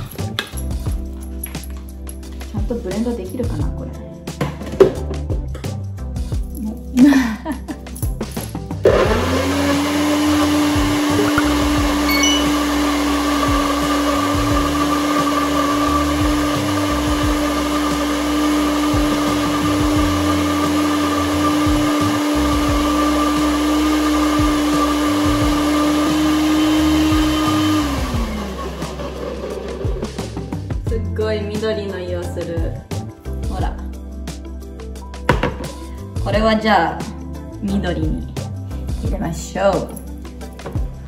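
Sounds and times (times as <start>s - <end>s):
personal blender running: 8.8s - 30.4s.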